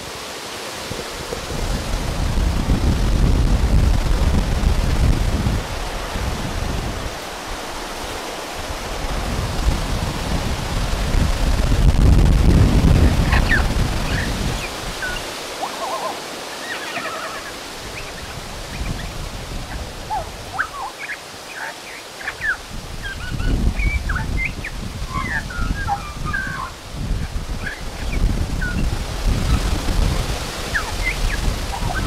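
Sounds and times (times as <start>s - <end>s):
magpie chirps and whistles: 20.1s - 26.7s, 30.7s - 32.0s.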